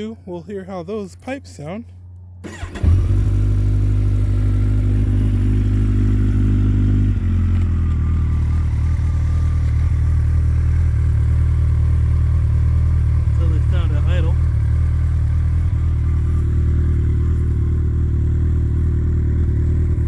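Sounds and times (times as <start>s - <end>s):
motorcycle engine idling: 2.0s - 20.0s.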